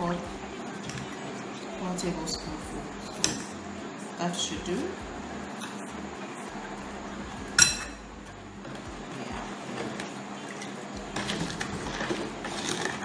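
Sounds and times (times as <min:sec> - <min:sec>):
metal spoon clinking on bowl: 0:07.6 - 0:08.0.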